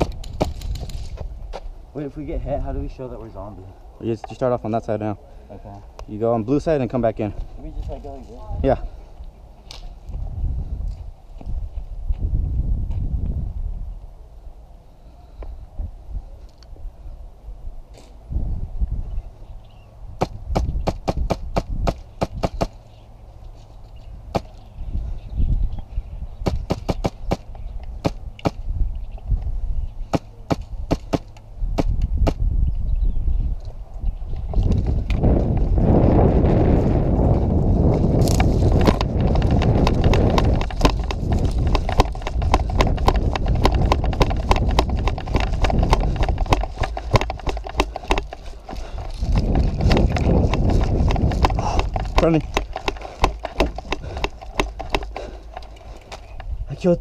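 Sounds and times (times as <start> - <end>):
wind on microphone: 9.8 - 14.2, 15.2 - 22.8, 24.0 - 57.0
airsoft rifle shots: 26.4 - 28.6, 30.1 - 32.4
footsteps on dirt and grass: 34.4 - 56.4.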